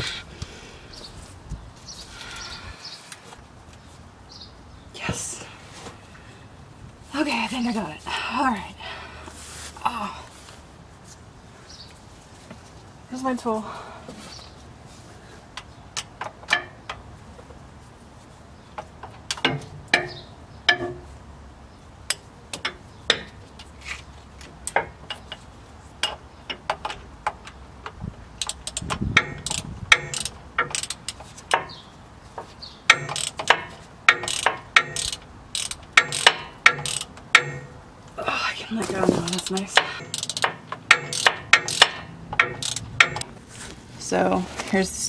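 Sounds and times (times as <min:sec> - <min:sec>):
ratchet wrench clicking: 0:28.4 - 0:31.7, 0:32.9 - 0:37.7, 0:39.3 - 0:43.2.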